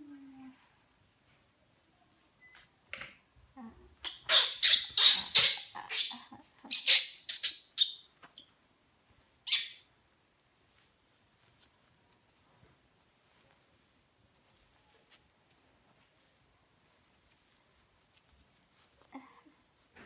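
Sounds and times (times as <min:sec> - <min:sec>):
baby monkey crying: 0:04.0 - 0:07.9.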